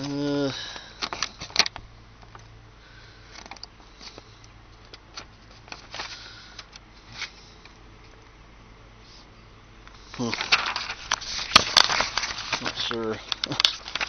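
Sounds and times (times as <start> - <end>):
paper pages rustling: 4.9 - 8.2, 9.9 - 14.0.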